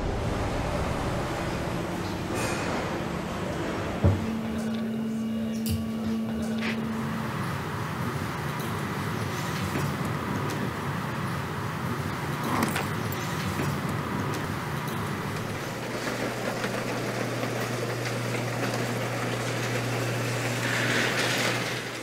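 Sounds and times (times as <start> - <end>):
low hum: 0.0 - 10.5, 15.0 - 21.9
factory machinery din: 0.0 - 22.0.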